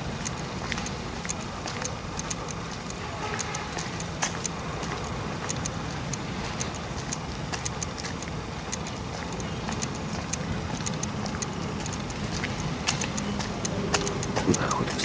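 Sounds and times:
footsteps on paved path: 0.0s - 15.0s
steady low rumble: 0.0s - 15.0s.

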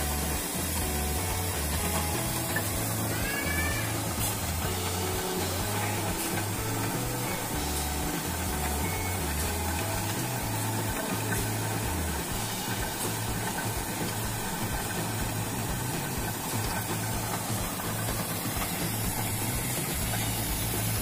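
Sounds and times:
filling machine humming: 0.0s - 21.0s.

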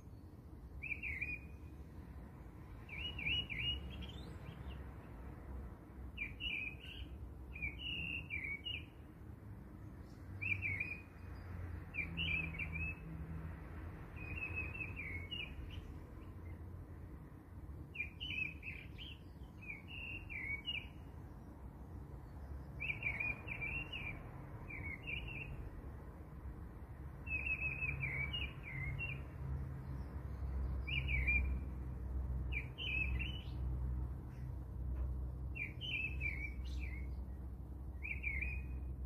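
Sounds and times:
small bird chirping: 0.8s - 1.8s, 2.7s - 5.0s, 6.2s - 9.0s, 14.2s - 16.6s, 17.9s - 21.5s, 22.2s - 25.7s, 27.2s - 31.7s, 32.5s - 33.7s, 35.6s - 39.0s.

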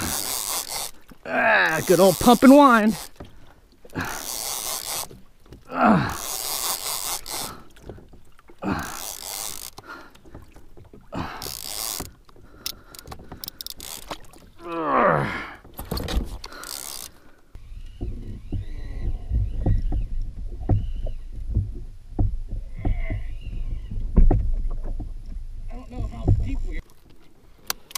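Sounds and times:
fishing reel cranking: 0.0s - 3.2s, 4.0s - 5.2s, 6.0s - 7.7s, 8.7s - 9.9s, 11.2s - 14.3s, 16.0s - 19.2s
short falling moan: 5.6s - 6.4s, 14.6s - 15.6s.

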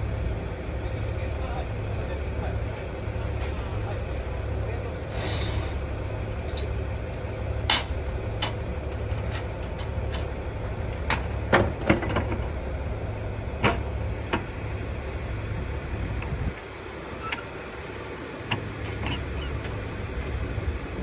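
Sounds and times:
diesel railcars idling: 0.0s - 21.0s
metal clanks and knocks: 11.0s - 12.5s, 13.6s - 14.6s, 18.4s - 19.8s.

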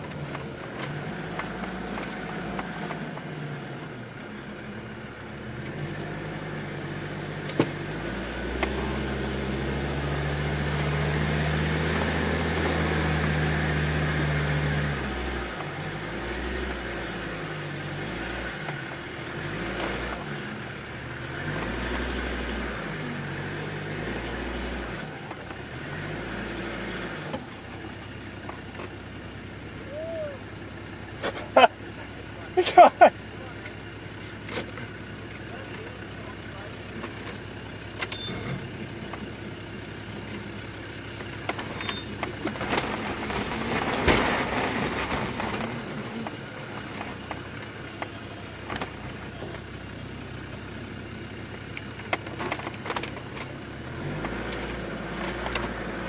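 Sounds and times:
diesel engine working hard: 0.0s - 56.0s.

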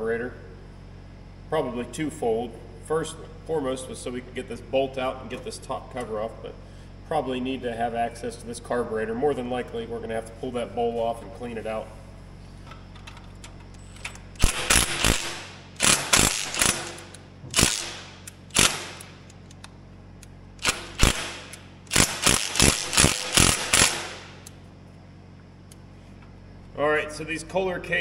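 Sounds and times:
impact driver hammering: 14.4s - 19.2s, 20.6s - 24.4s.

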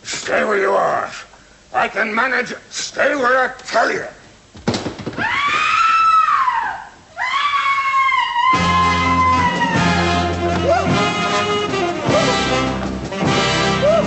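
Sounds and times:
high-pitched screams: 5.2s - 11.4s, 13.8s - 14.0s
dramatic orchestral music: 9.8s - 14.0s.

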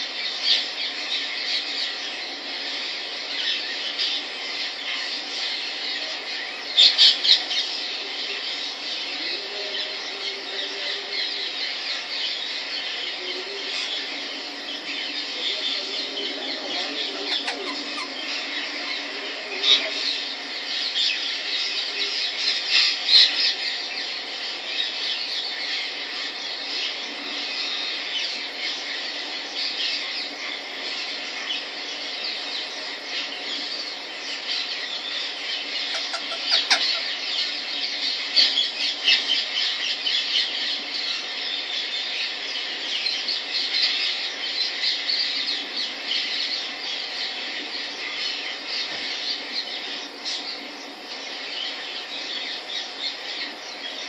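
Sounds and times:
parrot chattering: 17.1s - 18.3s, 35.7s - 37.5s.

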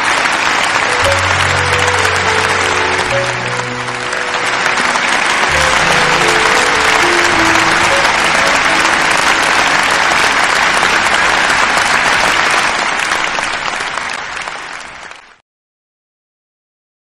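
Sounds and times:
music: 0.0s - 13.2s
crowd applauding: 0.0s - 15.4s.

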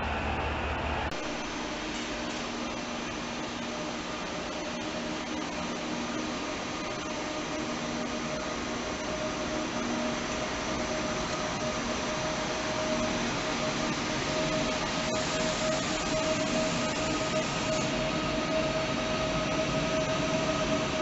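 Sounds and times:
train motor whine: 0.0s - 21.0s
train blowers hissing: 4.9s - 20.8s.

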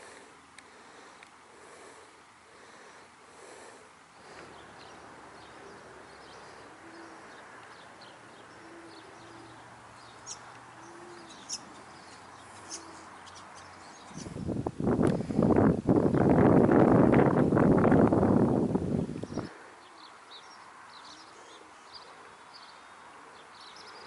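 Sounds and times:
short low bird calls: 4.4s - 14.5s, 19.2s - 24.0s.

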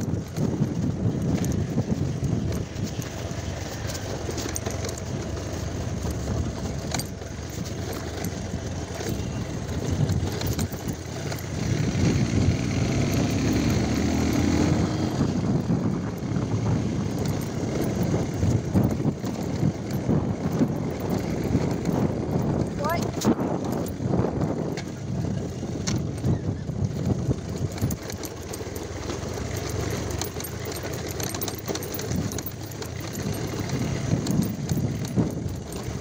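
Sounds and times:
motorcycle engine rumbling: 0.0s - 36.0s.

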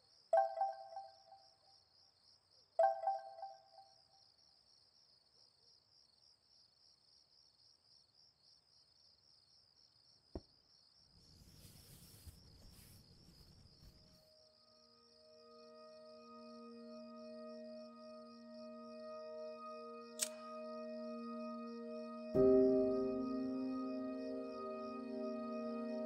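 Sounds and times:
crickets chirping: 0.0s - 26.0s
sharp click: 20.2s - 20.4s.

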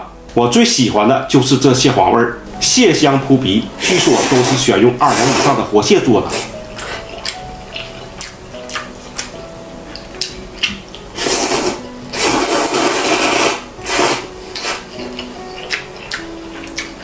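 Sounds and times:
noodles being slurped: 3.8s - 5.6s, 11.2s - 15.7s.

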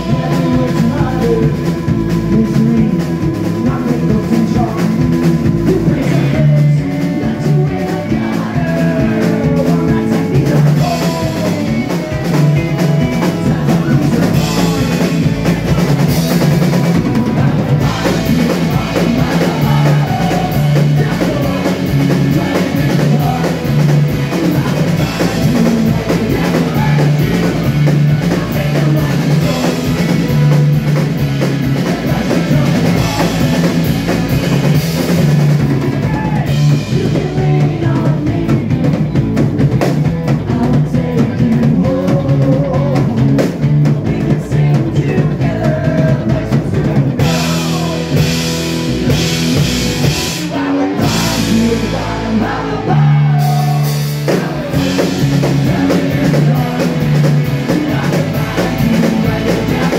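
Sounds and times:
backing vocals: 0.0s - 59.9s
drum kit beat: 0.0s - 59.9s
electric and acoustic guitars: 0.0s - 59.9s
keyboard: 0.0s - 59.9s
lead singer: 0.0s - 59.9s.

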